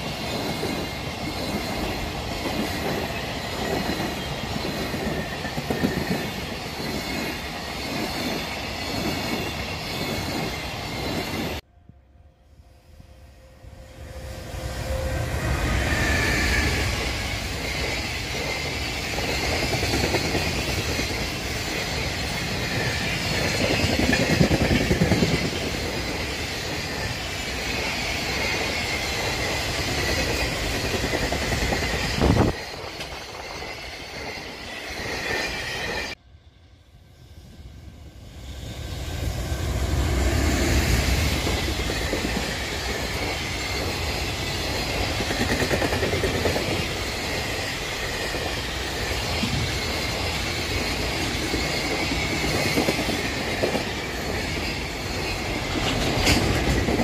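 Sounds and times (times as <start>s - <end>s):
freight train rumbling past: 0.0s - 57.0s
wheel squeal: 13.8s - 36.2s.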